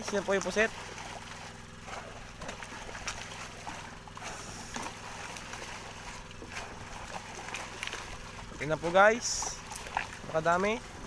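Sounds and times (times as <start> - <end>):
low motor hum: 0.0 - 11.0
water splashing and churning: 0.0 - 11.0.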